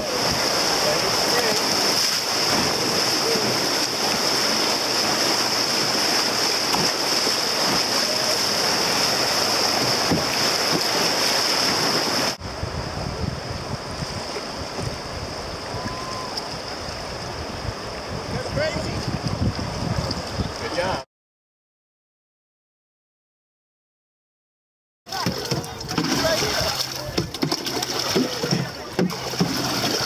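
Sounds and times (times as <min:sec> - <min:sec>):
river flowing: 0:00.0 - 0:18.2, 0:25.1 - 0:30.0
whitewater rushing and splashing: 0:00.0 - 0:21.0, 0:25.1 - 0:30.0
wind rumbling on microphone: 0:00.0 - 0:21.0.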